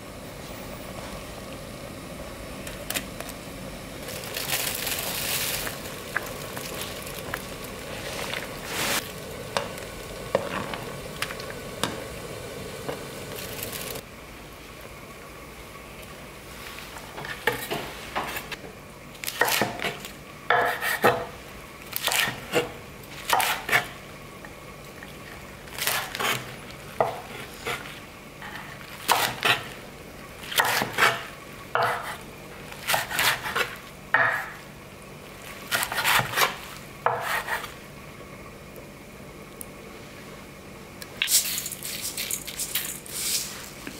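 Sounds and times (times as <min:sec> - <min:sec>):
knife chopping on wooden board: 0:19.4 - 0:21.3, 0:23.3 - 0:23.9, 0:30.5 - 0:31.2, 0:31.8 - 0:32.2, 0:35.7 - 0:37.7.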